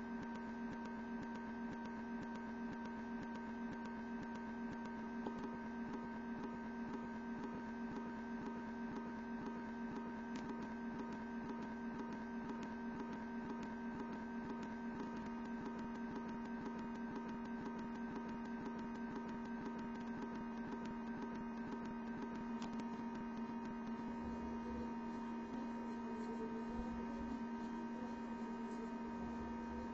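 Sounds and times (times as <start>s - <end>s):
steady electrical hum: 0.0s - 29.9s.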